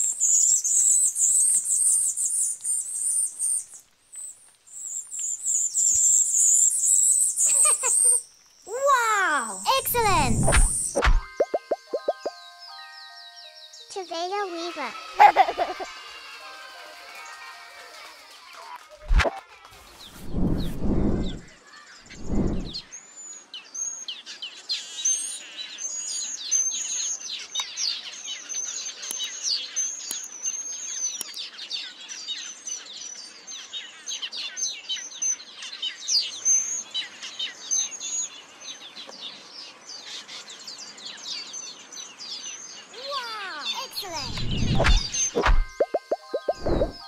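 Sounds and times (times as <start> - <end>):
bird chattering and whistling: 6.9 - 12.3, 43.7 - 47.0.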